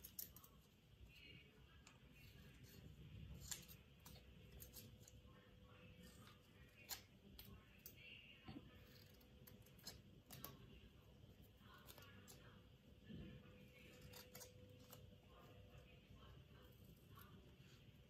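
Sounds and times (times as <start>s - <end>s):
scissors cutting paper: 1.2s - 5.2s, 6.0s - 10.7s, 13.7s - 16.0s.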